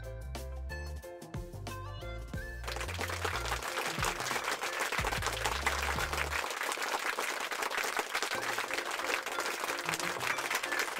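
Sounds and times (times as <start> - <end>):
background music: 0.0 - 10.9
crowd applauding: 2.5 - 10.9.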